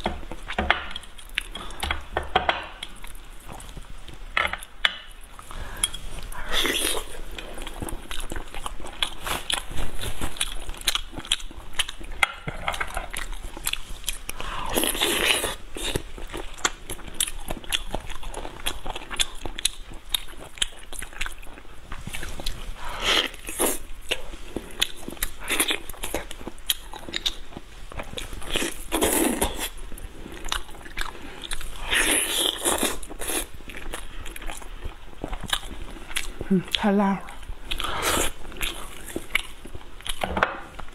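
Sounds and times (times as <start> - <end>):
wet chewing mouth sounds: 12.8 - 40.2.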